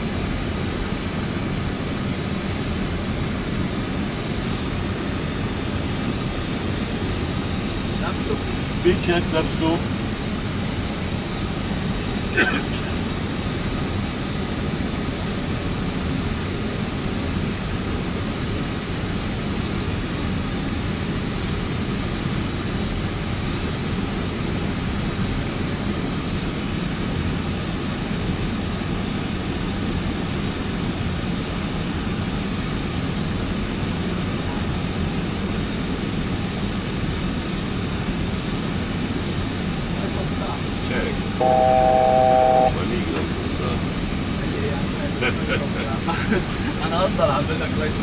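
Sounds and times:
cockpit engine rush: 40.5 - 47.2.

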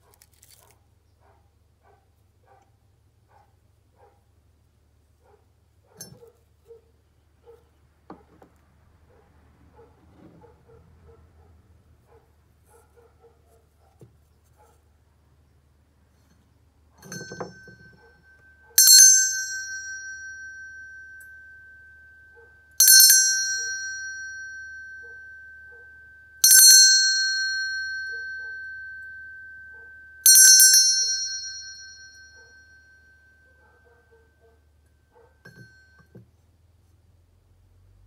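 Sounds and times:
hand bell ringing: 17.0 - 34.0, 35.4 - 36.2.

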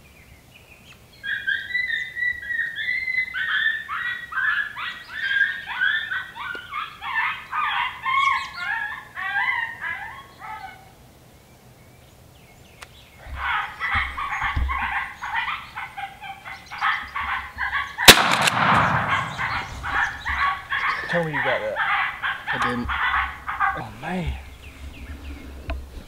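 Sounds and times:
predator call warbling yelps: 1.2 - 10.9, 13.2 - 24.5
shotgun blast: 18.1 - 20.1.

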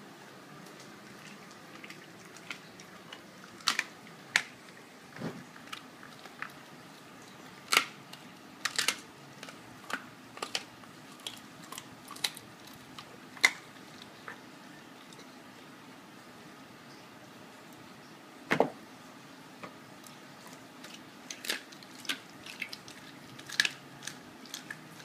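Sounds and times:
dog chewing bones: 20.4 - 25.0.

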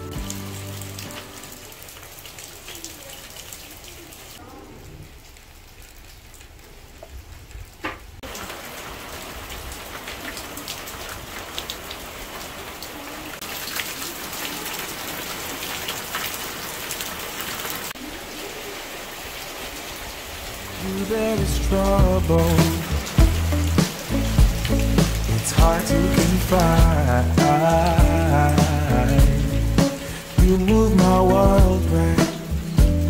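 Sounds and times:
steady rain falling: 0.0 - 33.0
water drops pattering: 21.2 - 33.0.

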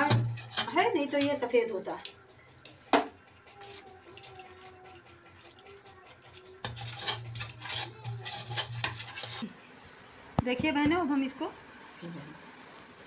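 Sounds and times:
metal spatula scraping steel tray: 0.0 - 2.0, 2.6 - 9.5.

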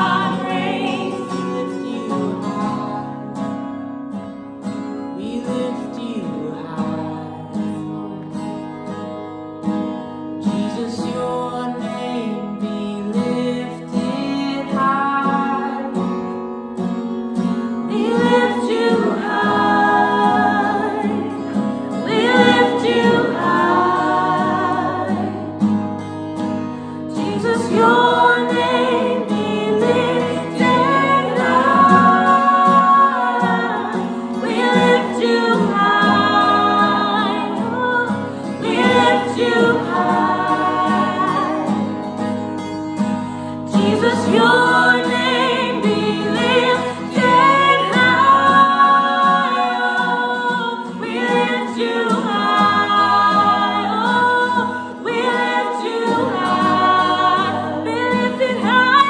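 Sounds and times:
people singing together: 0.0 - 3.4, 17.4 - 42.7, 43.6 - 59.0
strummed acoustic guitar: 0.0 - 59.0.

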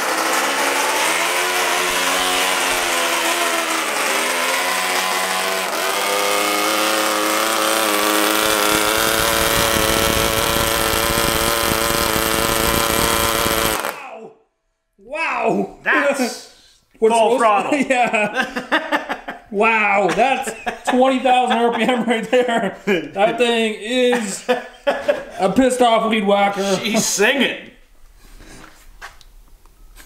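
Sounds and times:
small engine buzzing: 0.0 - 14.0.

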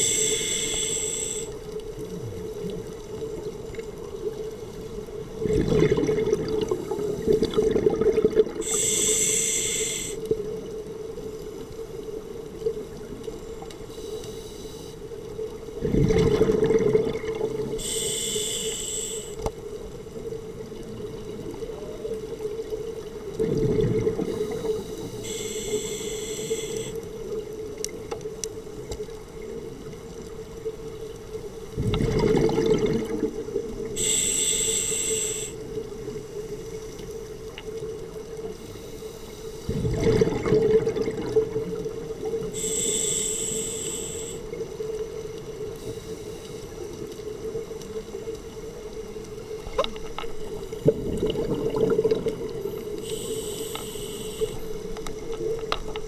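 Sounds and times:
diver breathing through regulator: 0.0 - 1.6, 8.6 - 10.2, 17.8 - 19.4, 24.3 - 27.0, 34.0 - 35.6, 42.5 - 44.5, 53.0 - 54.8
steady hum: 0.0 - 1.8, 8.6 - 10.3, 17.7 - 19.4, 24.3 - 27.1, 33.8 - 35.8, 42.4 - 44.6, 52.4 - 56.0
exhaled bubbles rumbling: 2.0 - 8.7, 15.6 - 17.8, 20.5 - 24.9, 31.6 - 34.0, 39.6 - 42.5, 49.4 - 53.0.

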